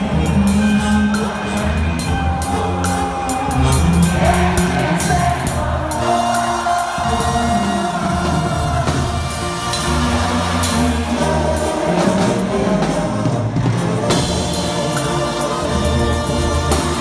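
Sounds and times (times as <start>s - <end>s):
man singing: 0.0s - 9.0s
brass playing: 0.0s - 17.0s.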